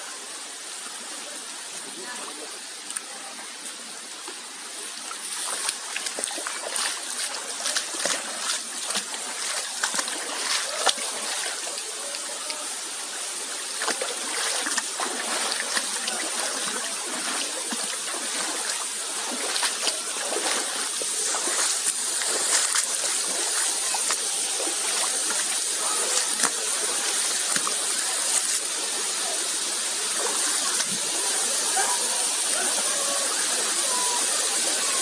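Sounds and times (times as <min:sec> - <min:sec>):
rushing stream water: 0:00.0 - 0:35.0
water splashes and clatters: 0:04.0 - 0:33.1.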